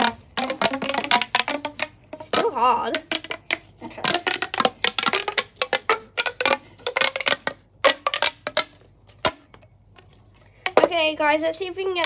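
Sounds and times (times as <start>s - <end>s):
plastic pop tube clicking: 0.0s - 9.6s.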